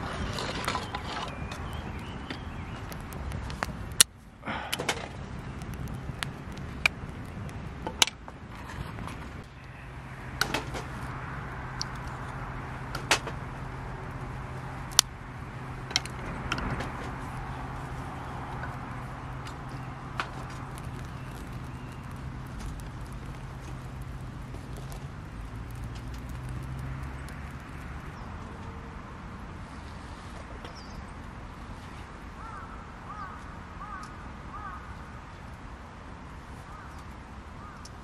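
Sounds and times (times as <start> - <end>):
campfire crackling and popping: 0.0 - 29.2
low steady hum: 0.0 - 30.1.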